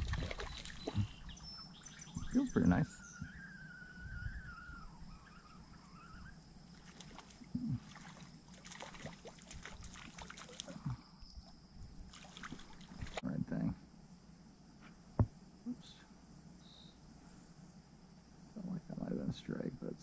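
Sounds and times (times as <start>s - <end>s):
water sloshing around legs: 0.0s - 1.4s, 6.7s - 10.9s, 12.1s - 13.2s
faint steady high hum: 0.0s - 20.0s
faint wavering high tone: 2.2s - 6.4s
knocks and soft thuds: 14.8s - 15.4s.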